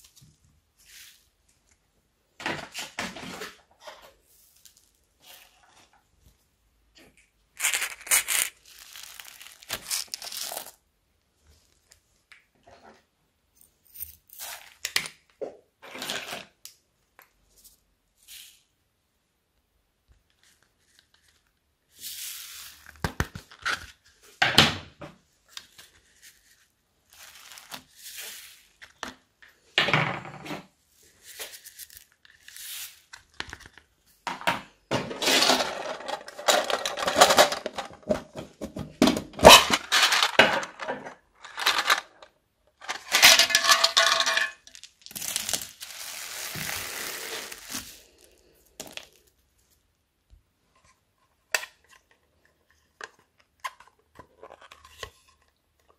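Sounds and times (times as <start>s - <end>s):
foam beads pouring crackling hiss: 45.1s - 48.3s.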